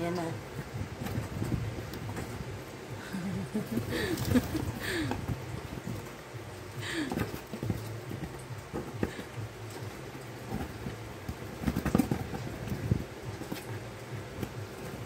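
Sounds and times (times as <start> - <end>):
kitten tapping cardboard box: 7.0 - 15.0.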